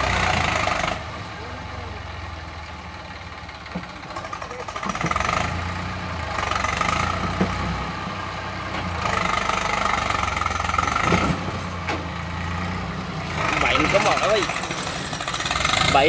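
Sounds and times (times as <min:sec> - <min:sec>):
tractor diesel engine revving: 0:00.0 - 0:16.0.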